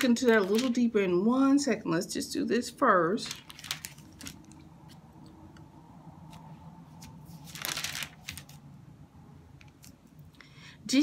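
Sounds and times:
paper pages rustling: 0:00.0 - 0:00.9, 0:03.2 - 0:05.0, 0:06.3 - 0:08.7, 0:09.6 - 0:10.2
faint steady hum: 0:00.0 - 0:11.0.

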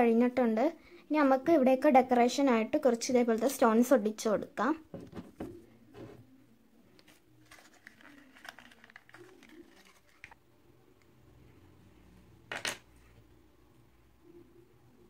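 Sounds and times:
glue tube knocking on table: 0:04.9 - 0:06.2
hands rustling craft materials: 0:07.0 - 0:10.4.

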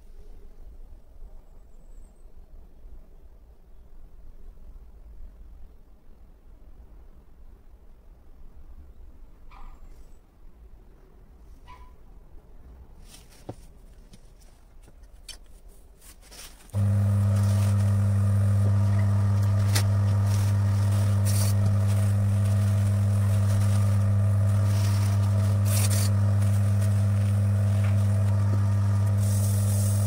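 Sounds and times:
tissue scraping roller: 0:16.0 - 0:30.0
electric motor humming: 0:16.8 - 0:30.0.

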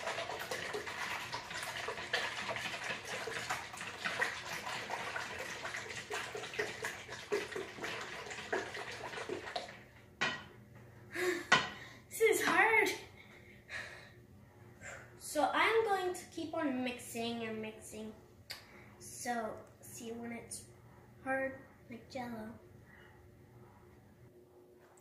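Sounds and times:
wet stirring in a mixing bowl: 0:00.0 - 0:09.9.

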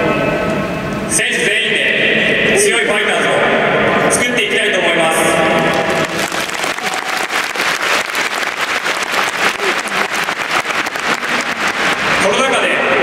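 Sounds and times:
crowd applauding: 0:05.6 - 0:13.0.

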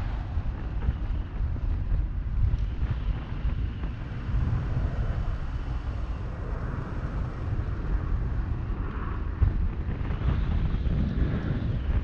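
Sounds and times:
wind buffeting microphone: 0:00.0 - 0:12.0
car road noise: 0:02.6 - 0:11.6.

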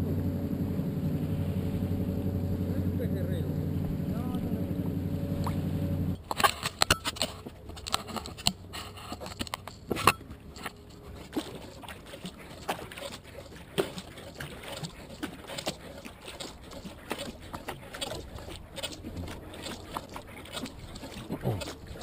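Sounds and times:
paddle splashing in water: 0:03.7 - 0:22.0
knocks and scrapes on a camera: 0:06.3 - 0:22.0.

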